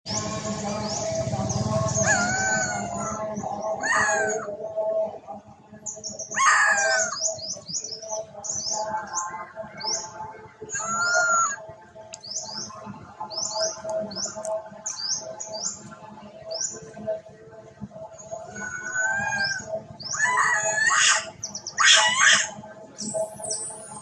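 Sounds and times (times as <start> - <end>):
small birds chirping: 0.1 - 5.1, 5.7 - 17.2, 17.9 - 24.0
macaque crying: 2.0 - 4.5, 6.3 - 7.2, 10.7 - 11.6, 18.5 - 22.6.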